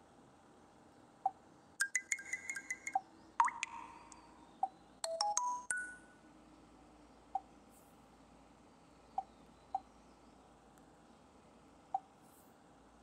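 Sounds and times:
phone notification chimes: 5.1 - 6.0.

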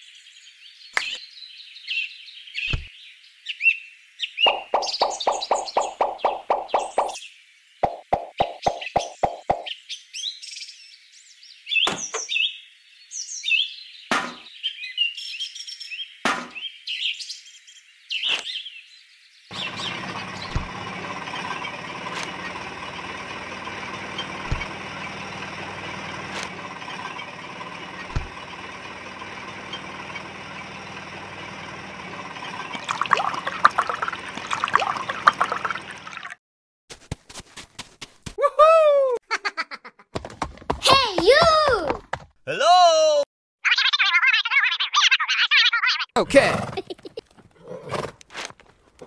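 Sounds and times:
birds chirping: 0.0 - 36.4
liquid pouring into tin buckets: 32.6 - 36.4.

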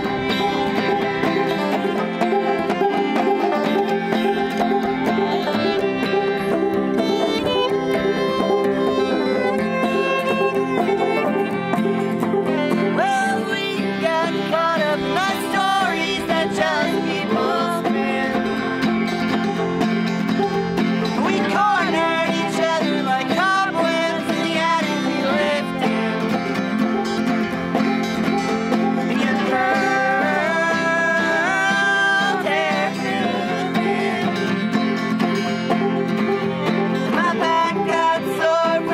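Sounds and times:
fiddle playing: 0.0 - 38.9
picked banjo: 0.0 - 38.9
strummed acoustic guitar: 0.0 - 38.9
people singing together: 12.9 - 18.9, 21.1 - 26.6, 29.0 - 35.0, 37.1 - 38.9.

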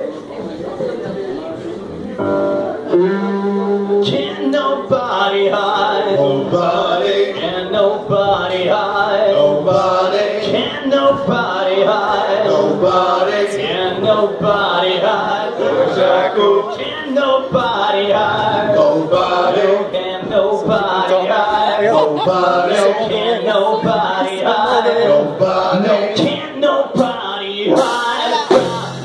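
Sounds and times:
male voices singing in harmony: 2.9 - 29.0
rock band instruments: 14.0 - 29.0.

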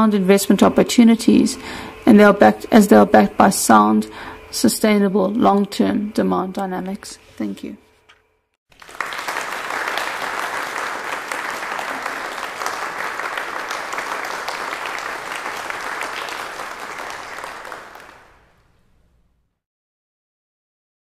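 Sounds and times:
audience applauding: 8.7 - 18.6.

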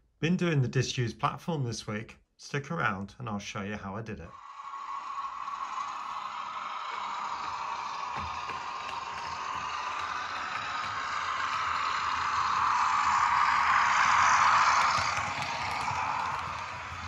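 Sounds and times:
model train motor whir: 4.3 - 17.0
train wheels on rails: 4.4 - 17.0.

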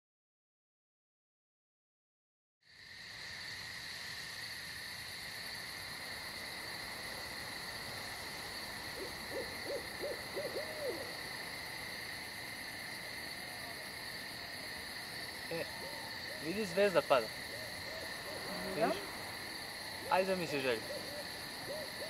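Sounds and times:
crickets trilling: 2.6 - 22.0
owl hooting: 8.0 - 11.5, 15.5 - 22.0.

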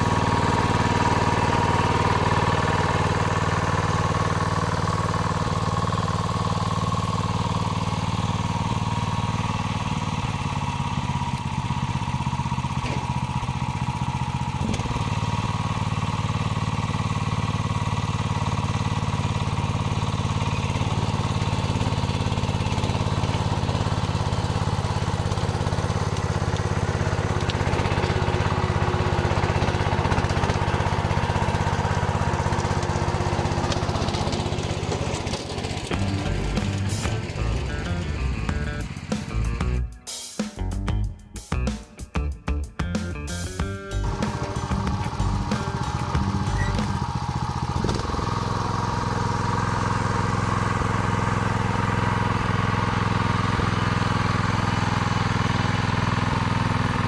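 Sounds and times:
walking tractor engine running: 0.0 - 39.9, 42.8 - 57.0.

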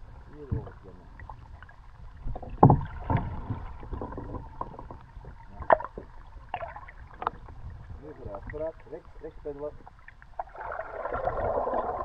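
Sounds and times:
paddle knocks: 2.3 - 6.2.

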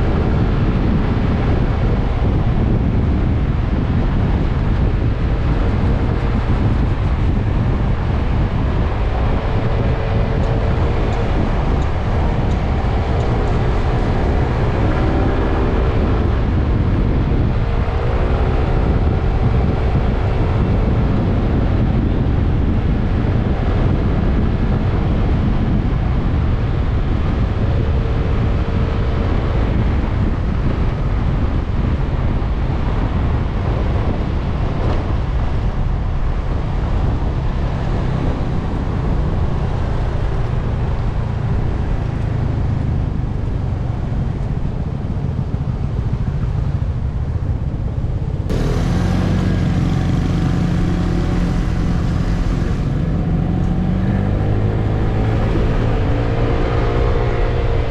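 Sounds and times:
wind rumbling over microphone: 0.0 - 57.9
scooter engine running: 48.2 - 54.0.

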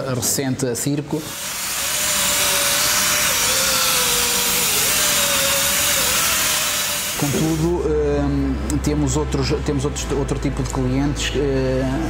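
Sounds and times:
air-powered orbital sander: 1.2 - 7.8.

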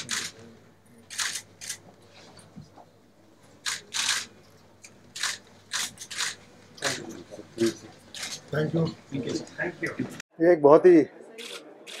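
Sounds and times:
camera shutters clicking: 0.0 - 0.4, 1.1 - 1.8, 3.6 - 4.3, 5.2 - 6.4.

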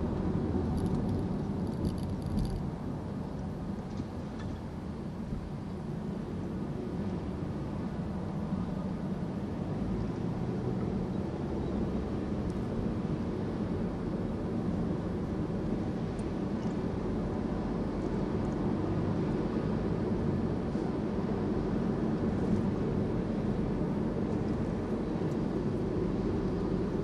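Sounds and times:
car road noise at highway speed: 0.0 - 27.0.

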